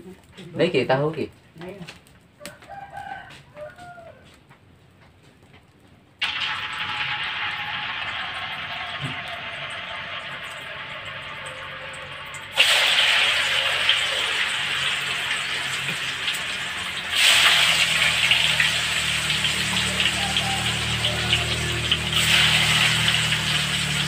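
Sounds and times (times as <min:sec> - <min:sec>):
tofu sizzling in hot oil: 0:06.2 - 0:24.0.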